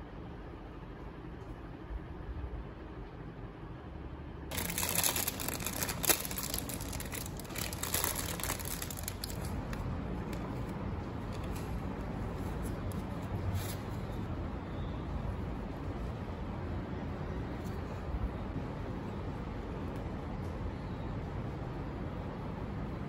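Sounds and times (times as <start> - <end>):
plastic bag crinkling: 4.5 - 10.6
baking paper rustling: 4.5 - 14.2.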